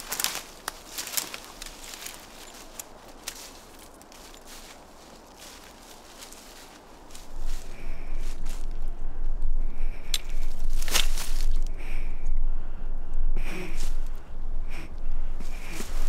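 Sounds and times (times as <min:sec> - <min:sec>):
low rumble: 0:07.2 - 0:16.0
breathing through a gas mask: 0:11.6 - 0:16.0.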